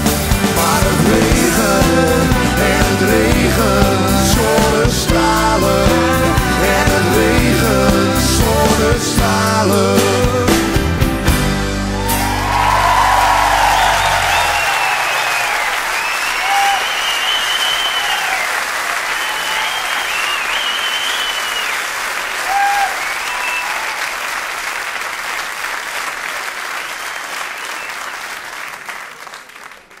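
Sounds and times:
audience applauding: 0.0 - 5.0, 11.9 - 30.0
whistles: 12.6 - 21.9, 22.5 - 24.0, 26.8 - 28.2.

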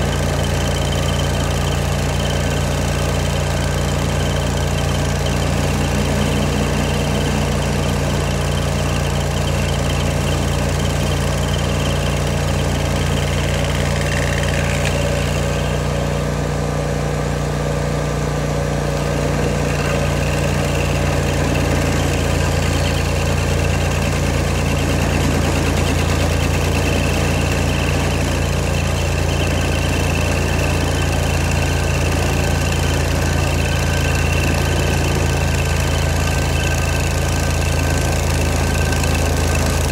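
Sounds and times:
stump grinder engine running: 0.0 - 39.9.

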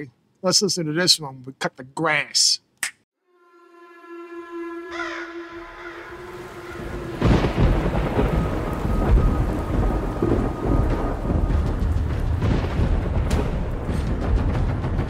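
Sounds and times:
heavy metal music: 4.9 - 15.0.

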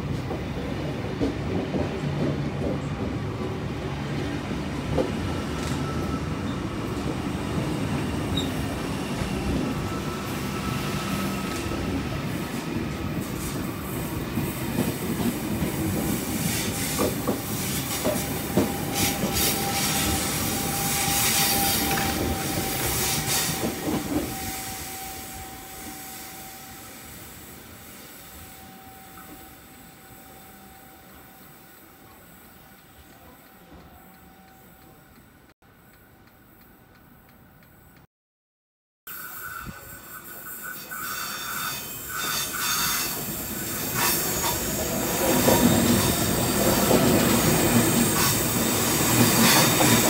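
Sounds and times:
train wheel squeal: 5.4 - 7.0, 8.0 - 12.6, 16.1 - 27.4, 28.0 - 35.0, 39.1 - 50.0.

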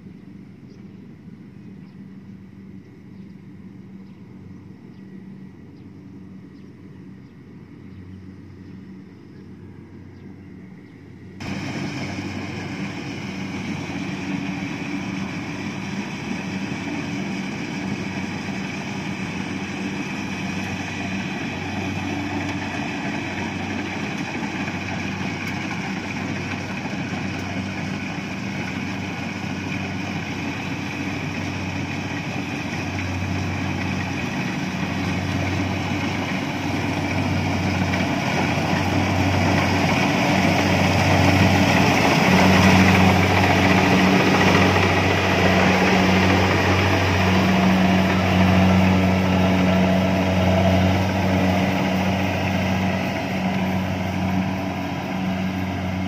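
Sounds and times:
combine harvester engine running: 2.6 - 56.0
broad rushing noise: 11.4 - 56.0.

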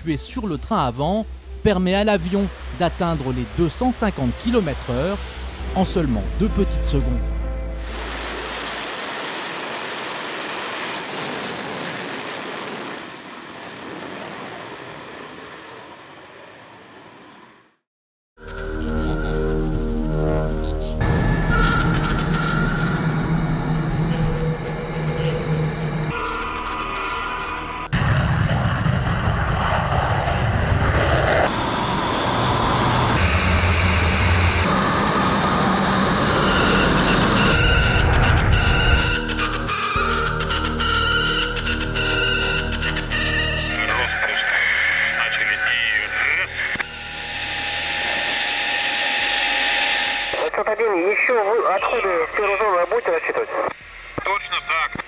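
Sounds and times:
jet engines with afterburner: 7.8 - 17.8, 21.0 - 39.1, 43.9 - 54.6.

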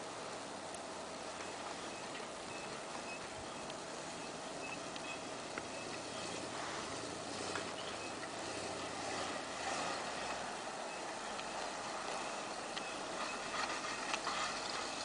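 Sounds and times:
truck engine running: 0.0 - 15.0.

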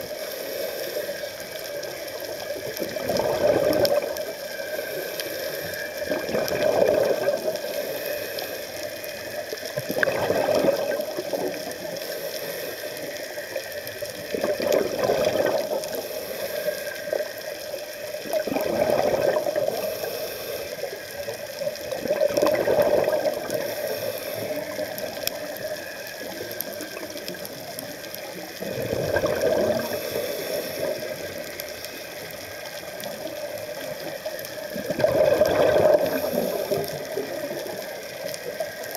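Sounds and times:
exhaled bubbles gurgling underwater: 0.0 - 38.9
water hiss: 0.0 - 38.9.

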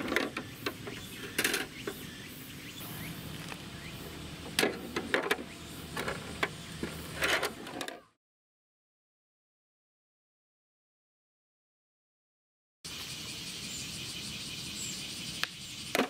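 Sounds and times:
plastic toy clicks and knocks: 0.0 - 2.0
low background hum: 0.0 - 7.8.

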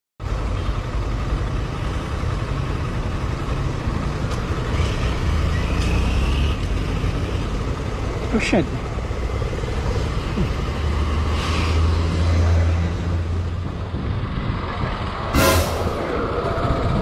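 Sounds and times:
motorcycle passing by: 9.2 - 13.6.

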